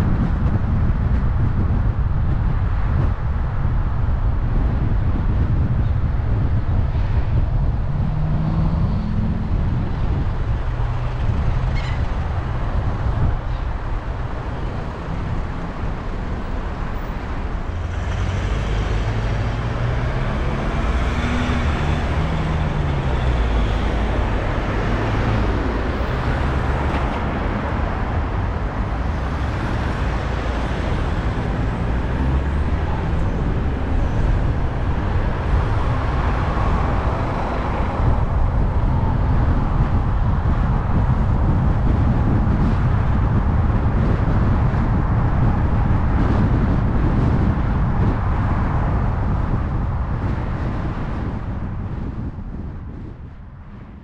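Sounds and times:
tyre and road noise: 0:00.0 - 0:54.0
car engine: 0:06.8 - 0:52.2.

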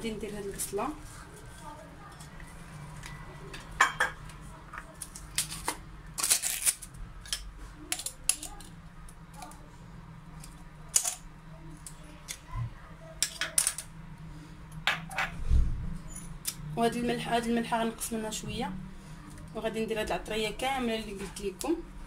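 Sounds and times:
kitchen items clicking and clattering: 0:10.4 - 0:11.3, 0:13.2 - 0:13.9.

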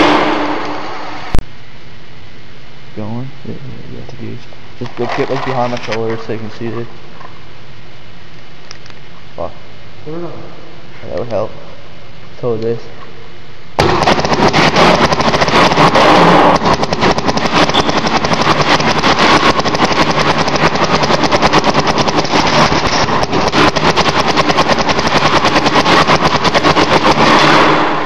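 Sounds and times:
paintball marker rapid firing: 0:13.8 - 0:28.0.

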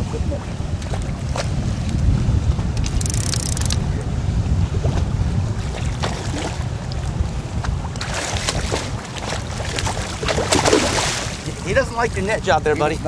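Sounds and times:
water slapping boat: 0:00.0 - 0:13.0
wind rumbling on microphone: 0:00.0 - 0:13.0
fish splashing at surface: 0:09.6 - 0:11.4.

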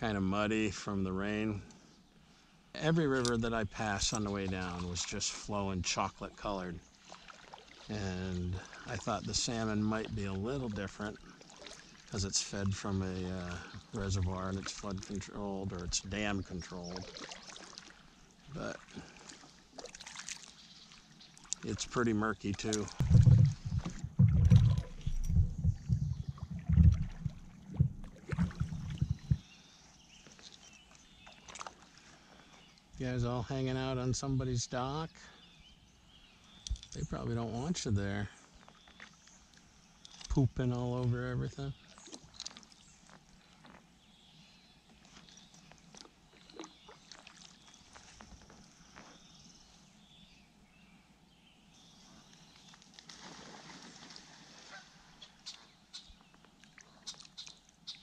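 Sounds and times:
kayak paddle thumps: 0:23.0 - 0:29.4
faint waterfowl calls: 0:54.5 - 0:58.0.

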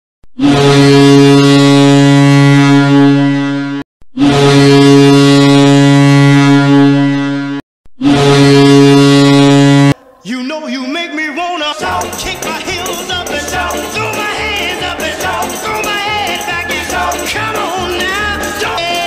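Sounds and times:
goal horn blasts: 0:00.4 - 0:10.0.

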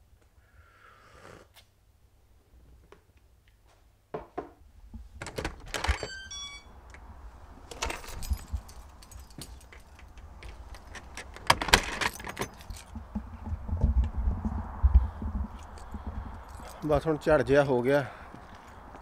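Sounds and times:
door handle and lock clicking: 0:05.2 - 0:07.0, 0:07.7 - 0:12.7
falling run of high tones: 0:06.0 - 0:06.8
keys jangling: 0:07.7 - 0:13.0, 0:15.6 - 0:17.0.

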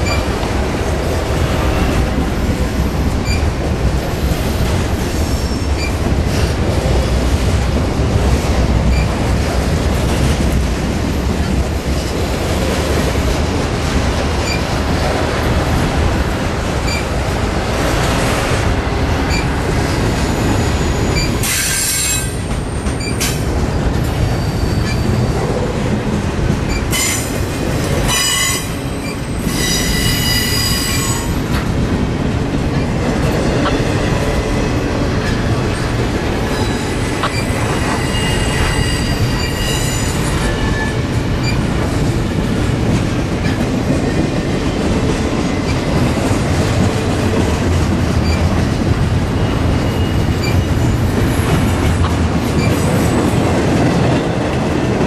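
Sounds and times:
train wheel squeals: 0:00.0 - 0:00.3, 0:03.2 - 0:03.5, 0:05.2 - 0:06.4, 0:08.9 - 0:09.2, 0:14.4 - 0:14.7, 0:16.8 - 0:17.1, 0:19.3 - 0:25.7, 0:26.7 - 0:27.4, 0:28.1 - 0:31.4, 0:36.4 - 0:41.7, 0:48.2 - 0:51.8, 0:52.6 - 0:53.2
freight train rumbling past: 0:00.0 - 0:55.0.

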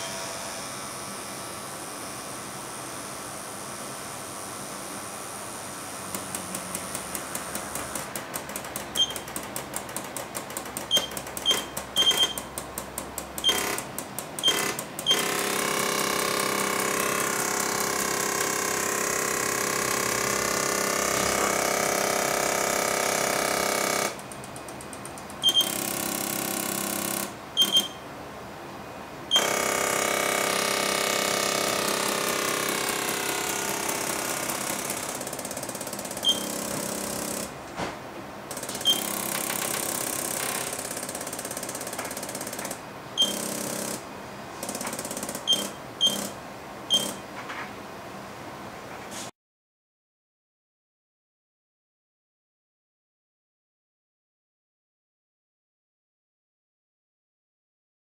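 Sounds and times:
hissing hum of air with whine: 0:00.0 - 0:12.6
pneumatic valves clicking: 0:06.1 - 0:15.8, 0:24.2 - 0:27.9, 0:31.9 - 0:37.4, 0:38.5 - 0:44.0, 0:44.6 - 0:47.2.

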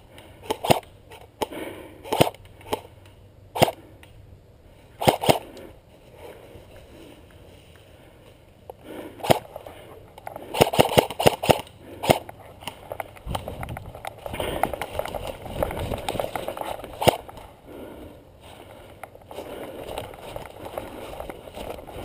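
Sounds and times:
airsoft gunshots: 0:03.6 - 0:03.8, 0:05.0 - 0:05.5, 0:10.5 - 0:12.3.

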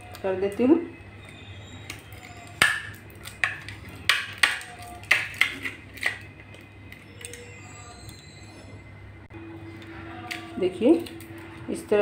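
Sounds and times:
aluminium foil crinkling: 0:01.2 - 0:08.1, 0:09.8 - 0:11.8.

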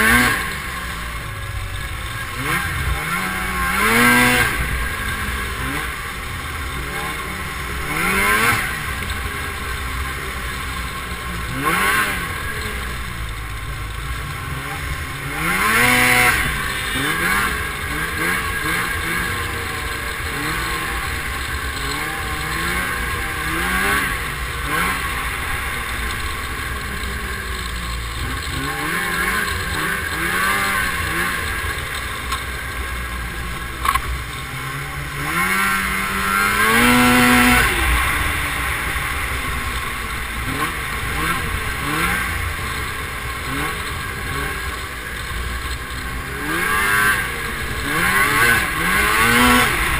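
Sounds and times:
snowmobile engine revving: 0:00.0 - 0:49.9.

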